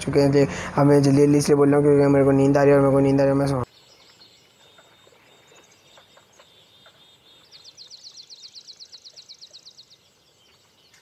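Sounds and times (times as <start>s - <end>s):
bird chirps: 3.6s - 11.0s.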